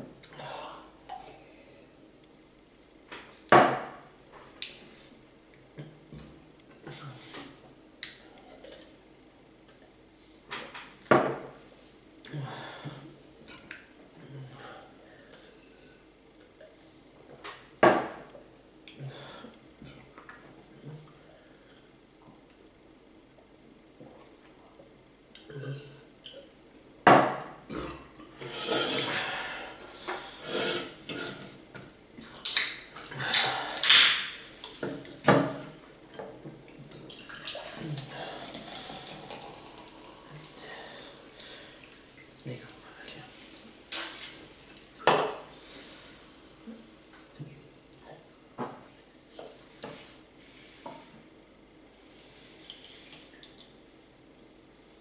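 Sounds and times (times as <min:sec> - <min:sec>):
swallowing: 0:37.1 - 0:42.0.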